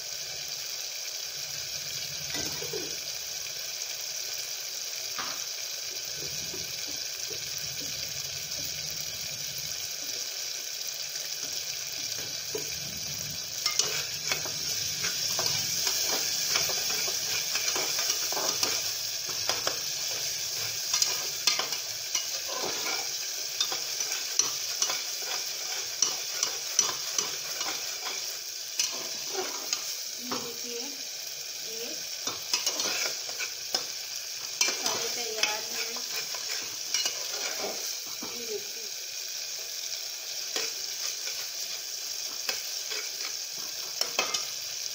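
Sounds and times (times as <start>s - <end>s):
paste sizzling in hot oil: 0.0s - 44.9s
spoon scraping a pan: 11.4s - 30.6s, 32.2s - 38.4s, 40.3s - 44.8s.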